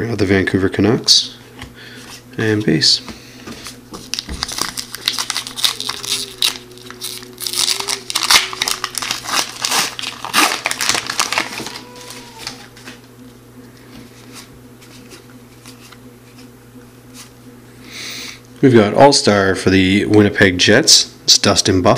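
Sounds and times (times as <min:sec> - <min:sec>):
cards being handled: 0:01.6 - 0:13.0
wrapper tearing and crinkling: 0:04.1 - 0:13.0.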